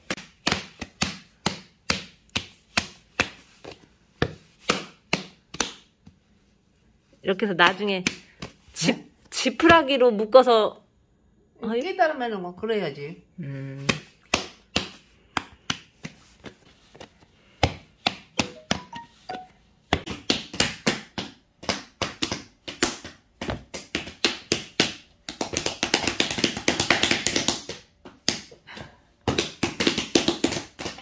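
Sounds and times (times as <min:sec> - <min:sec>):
hands slapping soybean block: 0:00.0 - 0:06.2.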